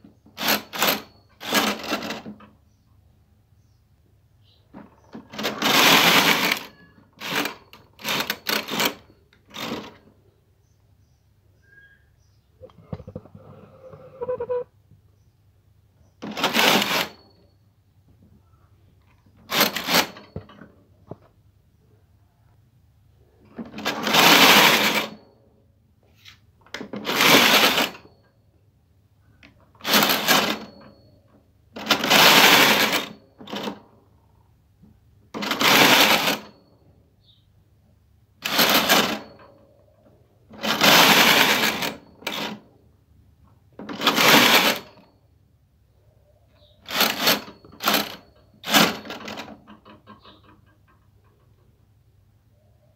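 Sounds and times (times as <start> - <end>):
knitting machine carriage sweeping: 0.3 - 2.5, 5.1 - 10.0, 13.2 - 14.6, 16.2 - 17.2, 19.4 - 20.3, 23.6 - 25.2, 26.8 - 28.1, 29.8 - 30.9, 31.8 - 33.8, 35.4 - 36.5, 38.4 - 39.4, 40.5 - 42.6, 43.8 - 45.0, 46.8 - 49.8.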